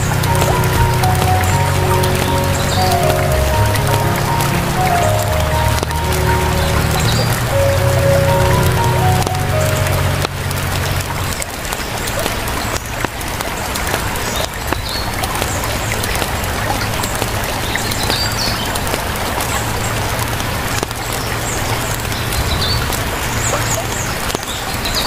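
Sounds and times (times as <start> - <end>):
low hum: 0.0 - 11.6.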